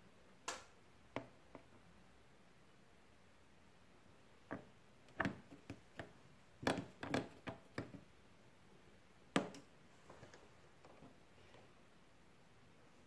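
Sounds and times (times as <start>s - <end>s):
plastic clicks and knocks: 4.5s - 8.0s.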